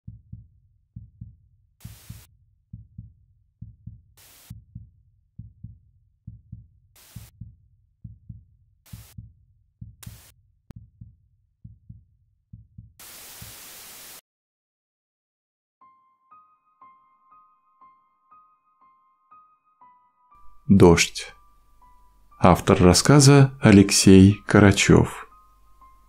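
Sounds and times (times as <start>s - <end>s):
heartbeat thumps: 0.0s - 13.6s
static hiss bursts: 1.8s - 2.3s, 4.2s - 4.5s, 7.0s - 7.3s, 8.9s - 9.2s, 10.0s - 10.3s, 13.0s - 14.2s.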